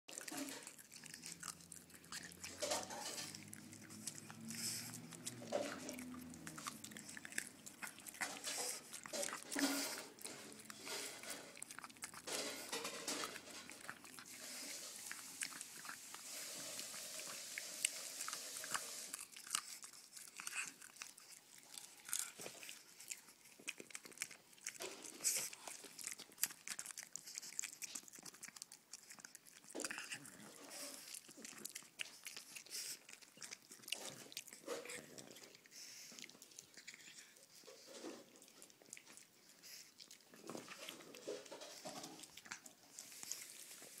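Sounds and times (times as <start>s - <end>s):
dog crunching hard candy: 0.1s - 44.0s.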